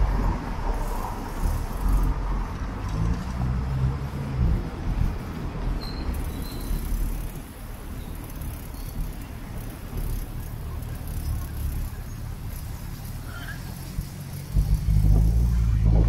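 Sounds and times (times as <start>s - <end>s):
wind rumble on microphone: 0.0s - 5.9s, 13.9s - 16.0s
city street traffic: 0.0s - 16.0s.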